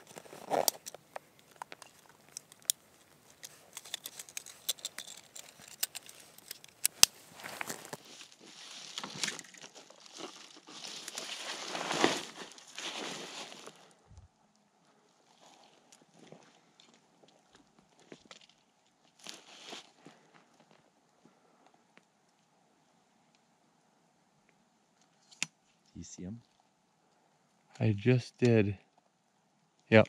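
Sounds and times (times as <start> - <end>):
rustling of dry grass and brush: 0.0 - 14.1, 15.0 - 21.9
sharp clicks and snaps: 0.6 - 7.2.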